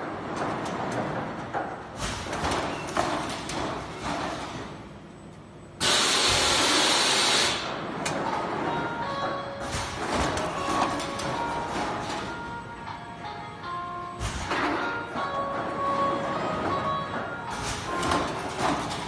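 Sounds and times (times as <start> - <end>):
screen printing machine running: 0.0 - 19.0
loud hiss at print head: 5.8 - 7.7.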